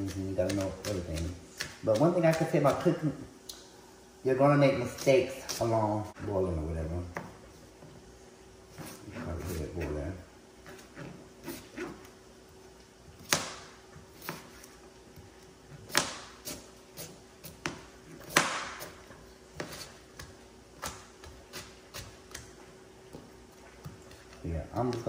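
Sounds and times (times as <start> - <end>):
knife chopping on plastic board: 0.0 - 3.0, 13.2 - 14.5, 15.2 - 25.0.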